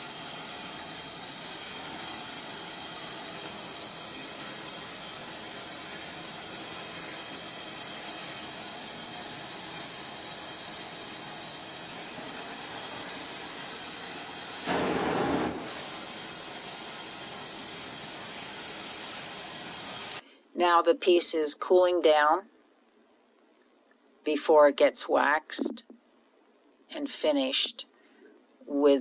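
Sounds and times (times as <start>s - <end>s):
gas torch flame hissing: 0.0s - 20.2s.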